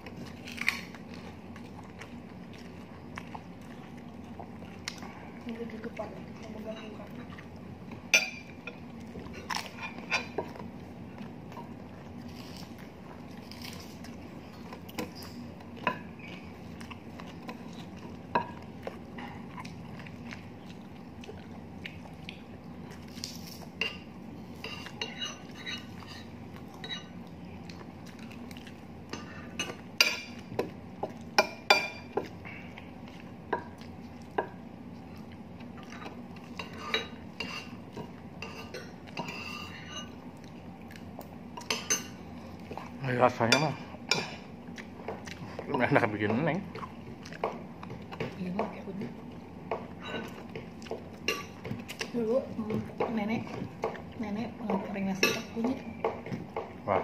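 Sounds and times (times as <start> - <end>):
cutlery clinking against a plate: 8.1 - 10.6, 23.8 - 27.2, 36.0 - 40.2, 41.6 - 42.2, 49.7 - 51.8, 54.7 - 56.8.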